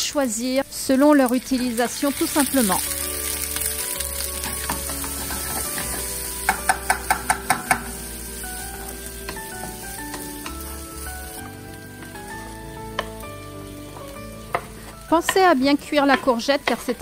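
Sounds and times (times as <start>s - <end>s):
onions sizzling in a pan: 0.0s - 17.0s
spatula knocking against pan: 4.6s - 7.9s.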